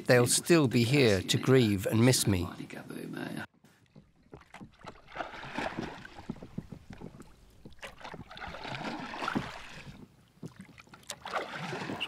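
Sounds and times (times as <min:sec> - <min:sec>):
oars splashing through water: 0:03.7 - 0:12.0.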